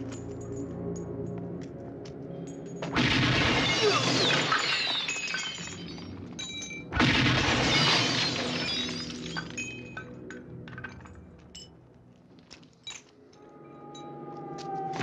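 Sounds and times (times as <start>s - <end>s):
glass shattering: 3.0s - 10.1s
glass shards falling: 3.6s - 6.8s, 7.4s - 10.0s.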